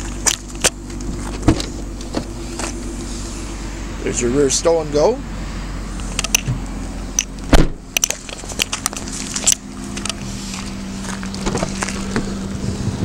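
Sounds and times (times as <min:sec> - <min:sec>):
footsteps on gravel: 0:00.0 - 0:03.6, 0:08.1 - 0:12.4
steady low hum: 0:00.0 - 0:13.0
loud thump: 0:07.5 - 0:07.9.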